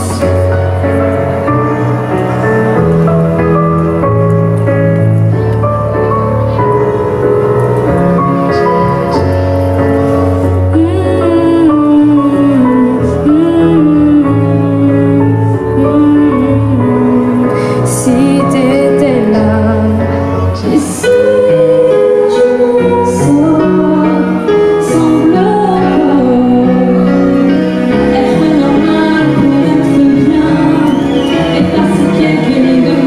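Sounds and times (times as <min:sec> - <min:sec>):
woman singing pop ballad: 0:10.7 - 0:33.0.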